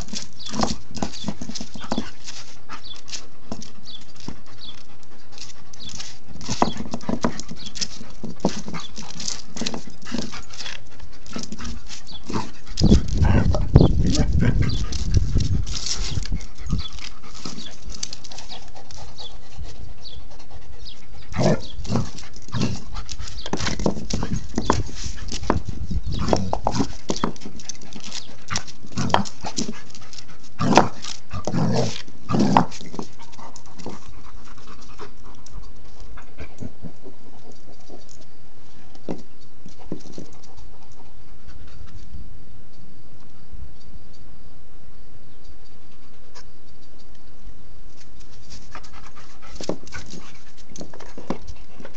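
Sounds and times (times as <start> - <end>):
dog panting: 0.0 - 31.5, 48.6 - 51.9
rock scraping on concrete: 21.3 - 35.1.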